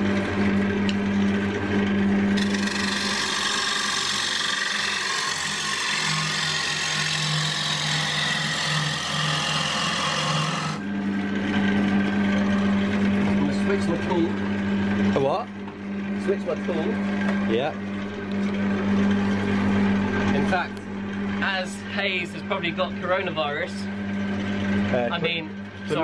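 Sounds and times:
wood lathe motor hum: 0.0 - 26.0
turning tool scraping wood: 2.3 - 10.8.

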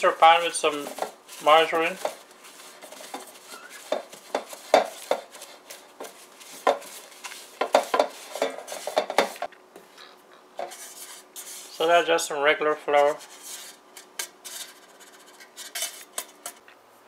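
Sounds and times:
paper towel scraping metal pan: 0.0 - 9.5, 10.6 - 12.0.

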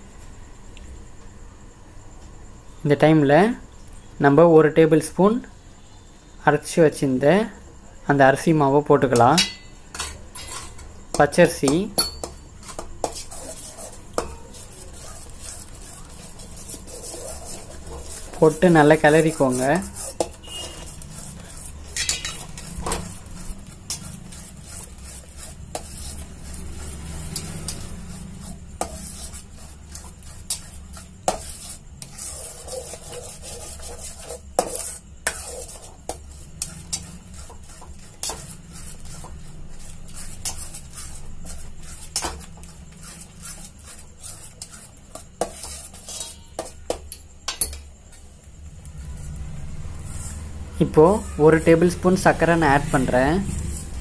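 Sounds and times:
spoon scraping metal pan: 9.1 - 48.2, 49.2 - 54.0
spoon clinking on pan: 9.2 - 10.8, 11.9 - 12.4, 22.0 - 22.4.

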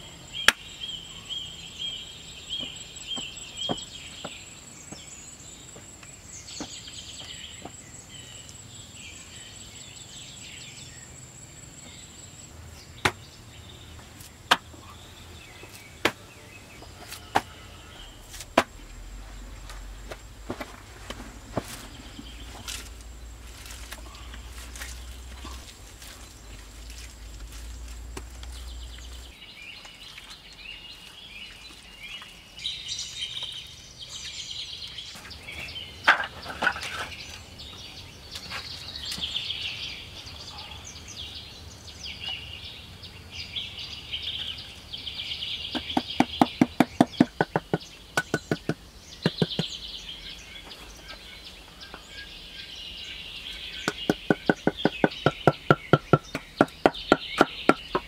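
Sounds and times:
birds chirping: 0.0 - 58.0
wooden block tapping wooden planks: 45.8 - 49.7.

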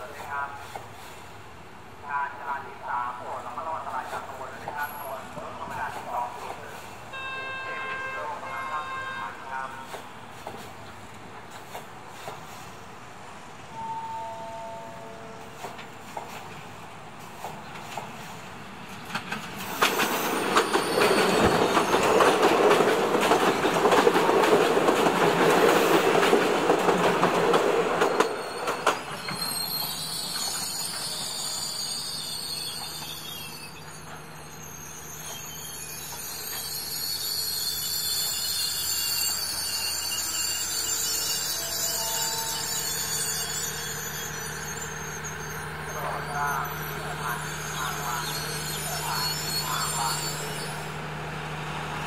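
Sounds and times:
railcar passing: 0.0 - 52.0
high-pitched squealing tones: 28.1 - 50.9.

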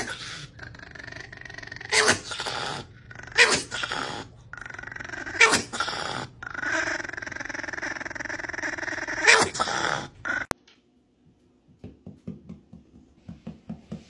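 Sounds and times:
small dog growling: 0.0 - 10.6.

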